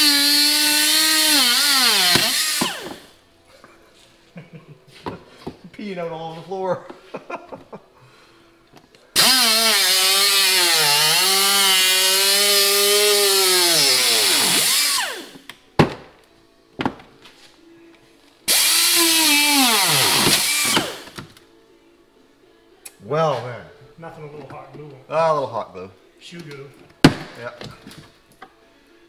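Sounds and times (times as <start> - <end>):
pneumatic cutting tool whine: 0.0 - 3.1, 9.2 - 15.4, 18.5 - 21.2.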